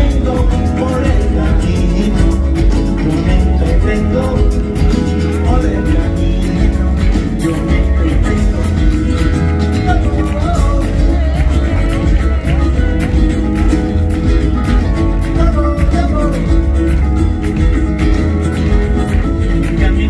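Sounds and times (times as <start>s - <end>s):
acoustic guitar: 0.0s - 20.0s
steady beat: 0.0s - 20.0s
upright bass: 0.0s - 20.0s.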